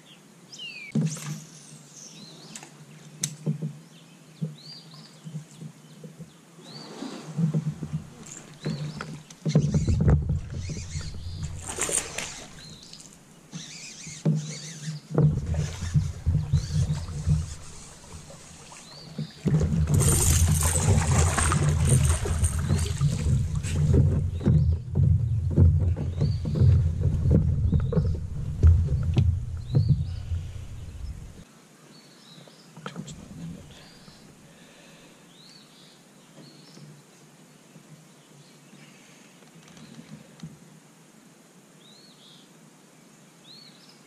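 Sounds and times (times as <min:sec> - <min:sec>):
knocks and scrapes against hull: 0:05.3 - 0:13.2, 0:14.2 - 0:31.4
loud rumble and rustle: 0:09.6 - 0:13.1, 0:15.2 - 0:31.4.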